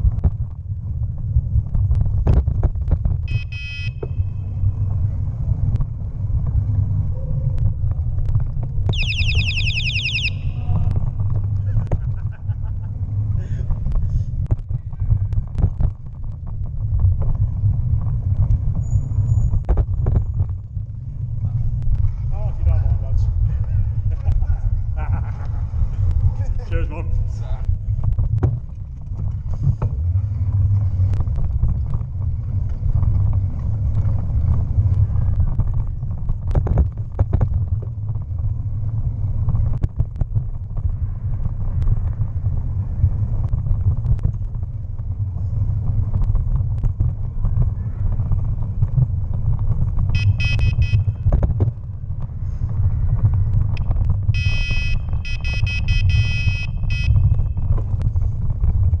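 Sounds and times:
wind rumble on microphone: 0:00.0 - 0:59.0.

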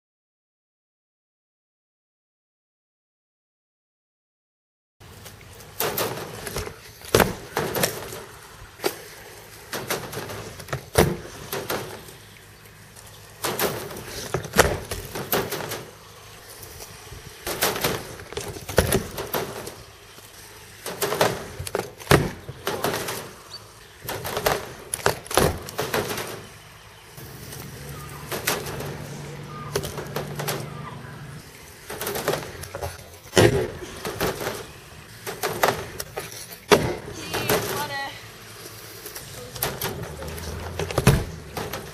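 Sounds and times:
wheels rolling on wood: 0:05.0 - 0:41.9
board clacking on ramp: 0:05.7 - 0:12.3, 0:13.4 - 0:16.1, 0:16.8 - 0:26.6, 0:31.8 - 0:38.0, 0:39.1 - 0:41.9.

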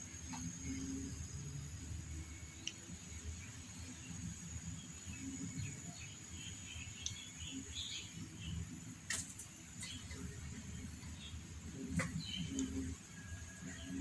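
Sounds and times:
high insect-like whine: 0:00.0 - 0:14.0
birds chirping: 0:02.4 - 0:08.8, 0:09.7 - 0:14.0.

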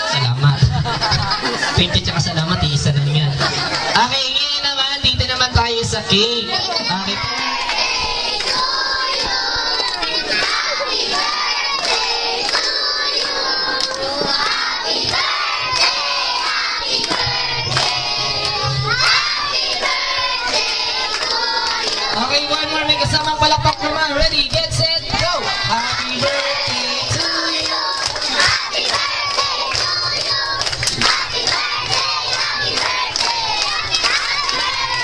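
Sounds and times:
crowd singing over speakers: 0:00.0 - 0:35.0
hand claps: 0:07.3 - 0:22.3, 0:24.4 - 0:35.0.

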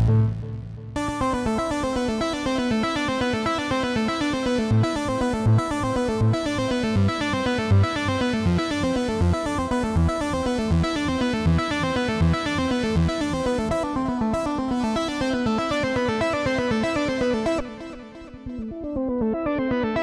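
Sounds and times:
low bass pulse: 0:00.0 - 0:01.0.

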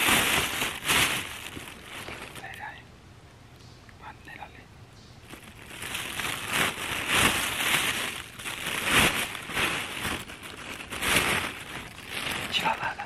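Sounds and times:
loud rustling: 0:00.0 - 0:02.5, 0:05.2 - 0:12.8.

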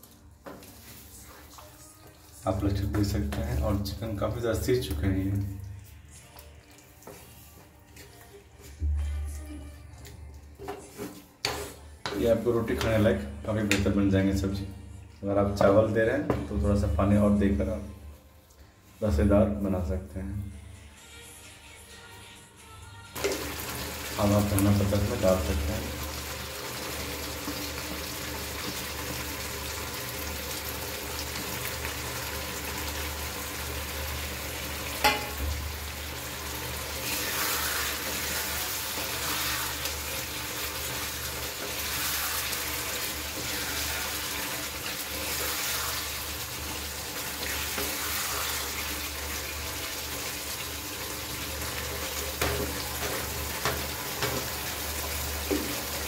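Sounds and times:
spatula stirring in a pan: 0:00.0 - 0:02.4, 0:10.6 - 0:12.9, 0:33.5 - 0:56.0
curry sizzling in a frying pan: 0:23.2 - 0:56.0.

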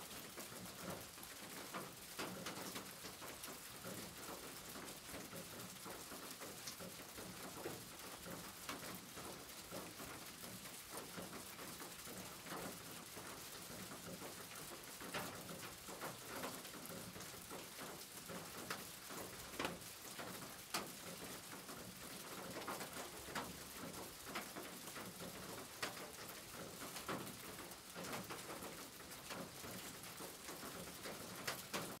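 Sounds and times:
rain on a tin roof: 0:00.0 - 0:32.0.

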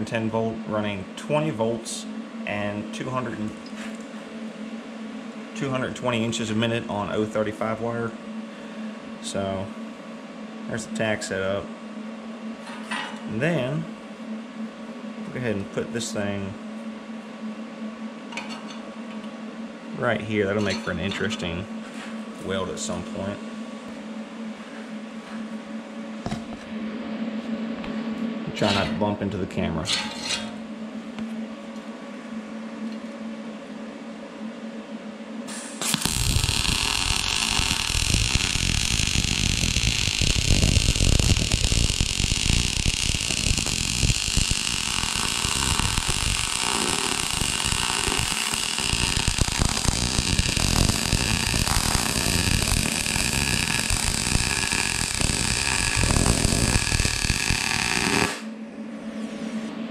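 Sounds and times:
low steady hum: 0:00.0 - 0:59.9
welding arc crackling sizzle: 0:35.5 - 0:58.5.

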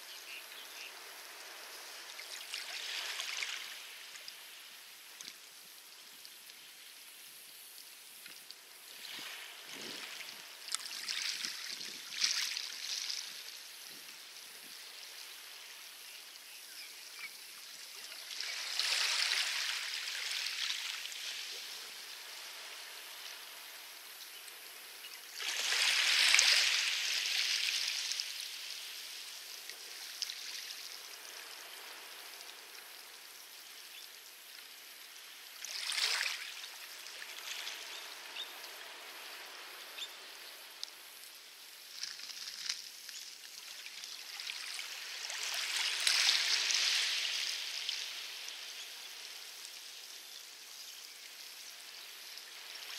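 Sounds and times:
waves washing on pebble beach: 0:44.2 - 0:49.5.

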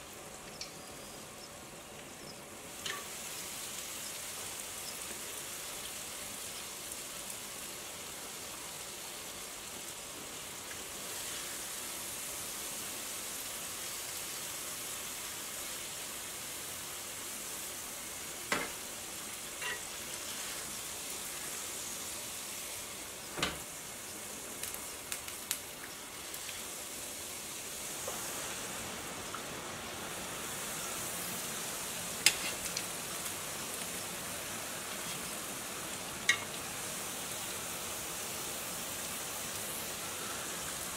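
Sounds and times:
oil sizzling: 0:00.0 - 0:40.9.

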